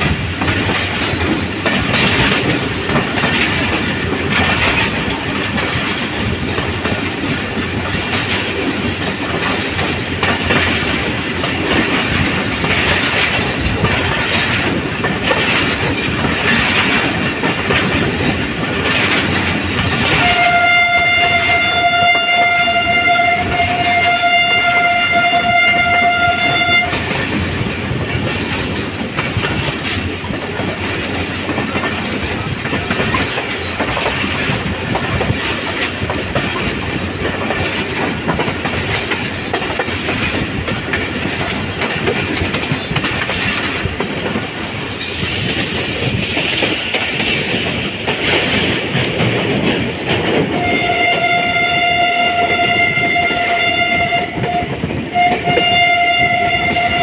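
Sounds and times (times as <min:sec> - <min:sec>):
train wheels rumbling on rails: 0:00.0 - 0:57.0
locomotive horn: 0:20.0 - 0:27.2, 0:50.5 - 0:57.0.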